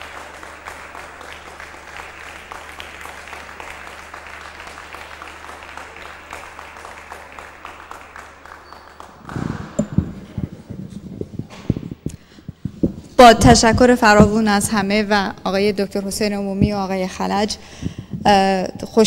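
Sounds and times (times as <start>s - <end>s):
audience applauding: 0.0s - 12.1s
microphone handling thumps: 9.3s - 15.0s, 16.5s - 18.5s.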